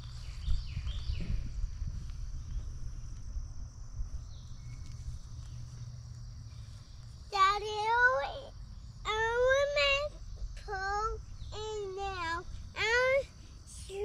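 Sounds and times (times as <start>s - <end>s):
low rumble: 0.0s - 7.4s
high-pitched insect chorus: 0.0s - 14.0s.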